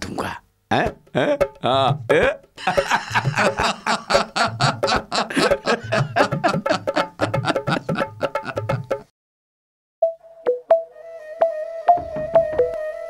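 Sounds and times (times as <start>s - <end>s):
cartoon background music: 0.7s - 9.1s, 10.0s - 13.0s.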